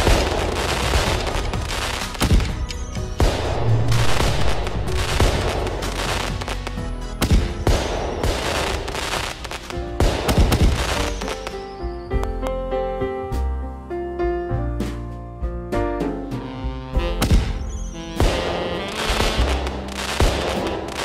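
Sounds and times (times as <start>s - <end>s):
fireworks bangs and crackling: 0.0s - 11.8s, 17.2s - 21.0s
background music: 0.0s - 21.0s.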